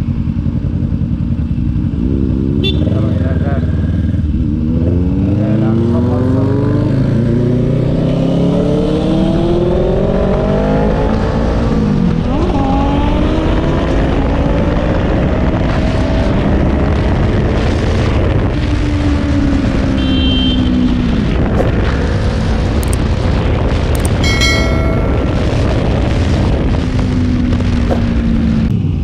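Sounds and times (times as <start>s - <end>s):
motorcycle engine at speed: 0.0s - 29.0s
wind rush on microphone: 7.8s - 29.0s.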